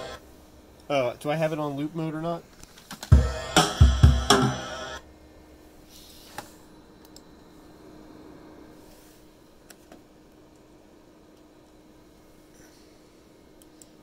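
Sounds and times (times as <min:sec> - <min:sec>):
drum loop playback: 0:00.0 - 0:00.2, 0:03.1 - 0:05.0.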